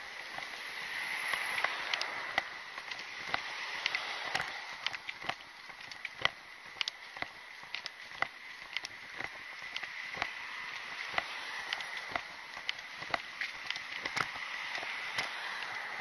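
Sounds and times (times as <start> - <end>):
car passing: 0.0 - 5.7, 9.0 - 16.0
footsteps on concrete: 1.4 - 15.8.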